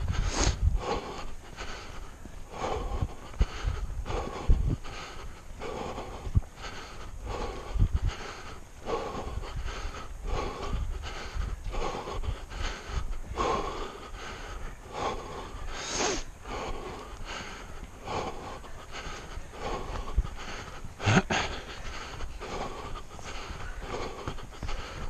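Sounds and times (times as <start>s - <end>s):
runner panting heavily: 0.0s - 25.0s.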